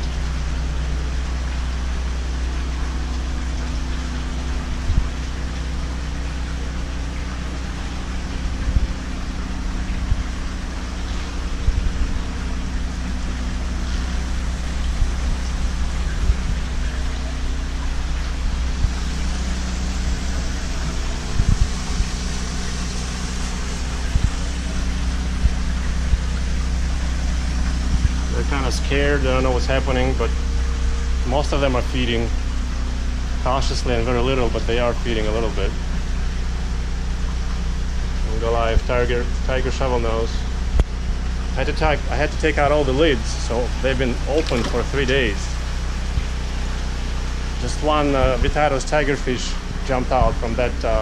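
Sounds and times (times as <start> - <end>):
generator running: 0.0 - 51.0
water pouring and splashing: 0.0 - 51.0.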